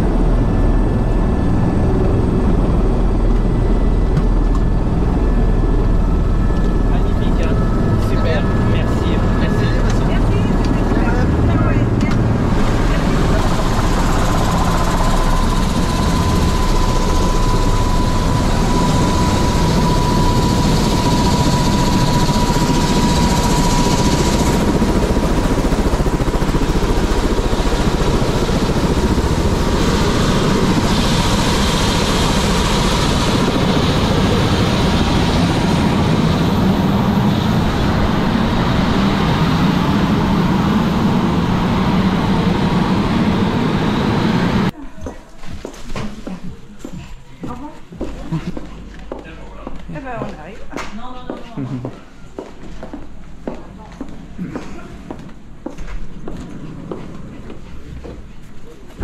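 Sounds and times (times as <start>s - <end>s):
helicopter rotor and engine noise: 0.0s - 44.8s
high turbine whine: 0.0s - 44.8s.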